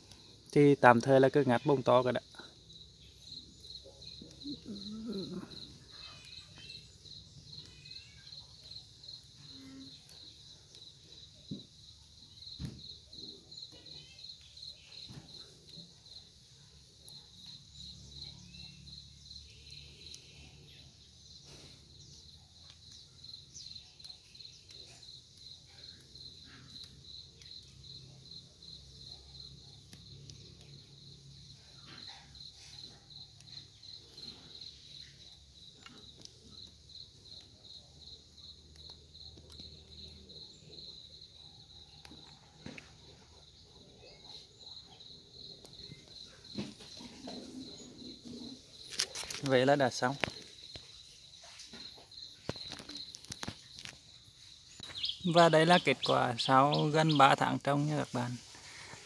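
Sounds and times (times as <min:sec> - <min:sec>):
cricket chirping: 0:00.0 - 0:59.0
plant rustling and clicks: 0:48.3 - 0:50.9, 0:51.6 - 0:54.1.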